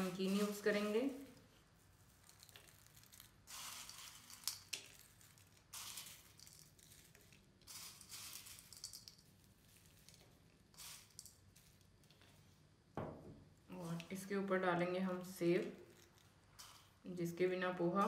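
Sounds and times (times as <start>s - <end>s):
snack mix rustling and crackling: 0.0s - 12.4s, 15.6s - 17.0s.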